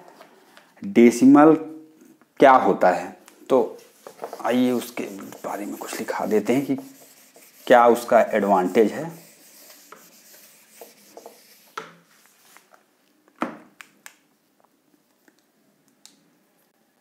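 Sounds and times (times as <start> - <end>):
duster rubbing on whiteboard: 3.6 - 12.0.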